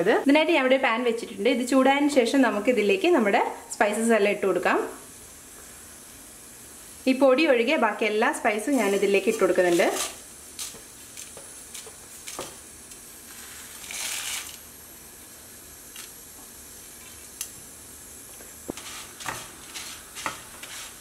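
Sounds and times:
faint steady hiss: 0.0s - 21.0s
wooden spatula scraping a pan: 8.6s - 10.2s, 18.7s - 21.0s.

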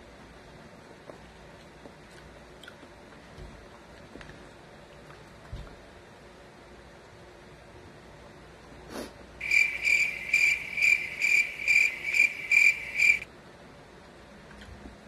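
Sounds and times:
high-pitched pulsing chirp: 9.4s - 13.2s.

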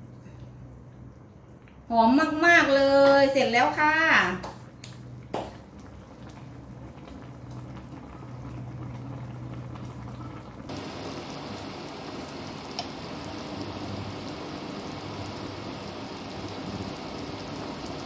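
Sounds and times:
soup bubbling at a boil: 4.6s - 18.0s.

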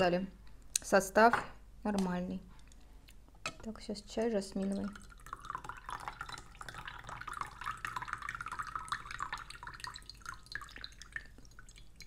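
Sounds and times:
tea trickling into glass mug: 4.6s - 12.0s.

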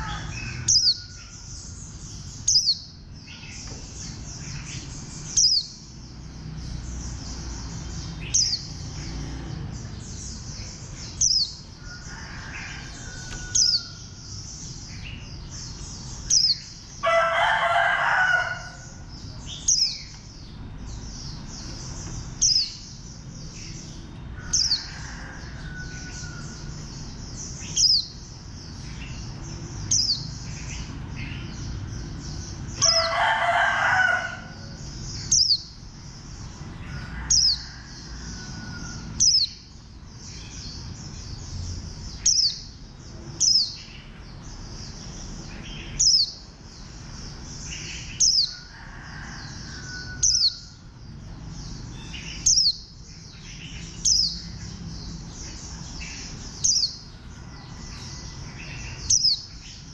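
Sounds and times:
rooster crowing: 0.0s - 1.8s, 11.8s - 14.2s, 17.0s - 19.1s, 24.3s - 26.9s, 32.8s - 34.8s, 36.8s - 39.4s, 48.4s - 50.9s, 56.7s - 59.0s
sharp loud bird chirp: 0.0s - 5.9s, 10.3s - 20.2s, 32.8s - 35.8s
bird twittering song: 0.0s - 59.9s.

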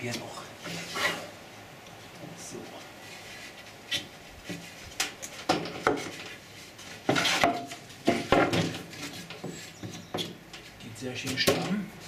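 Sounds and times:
wooden boards scraping: 0.6s - 1.4s, 3.0s - 10.4s
wooden boards knocking: 7.1s - 8.9s.

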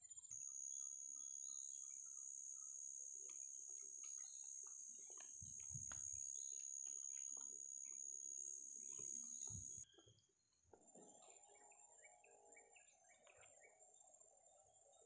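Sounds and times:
faint chirps and clicks: 0.2s - 15.0s
high-pitched insect drone: 0.3s - 9.8s.

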